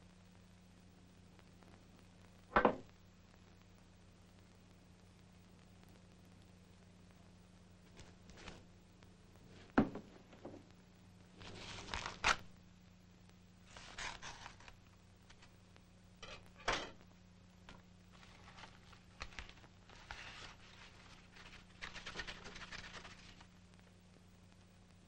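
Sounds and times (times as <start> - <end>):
faint steady hum: 0.0 - 25.0
paper tearing and rustling: 11.4 - 12.5, 13.7 - 15.5, 18.2 - 23.5.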